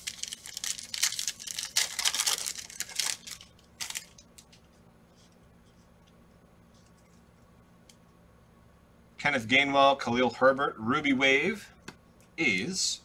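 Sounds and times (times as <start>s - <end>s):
foil wrapper tearing and crinkling: 0.0s - 4.6s.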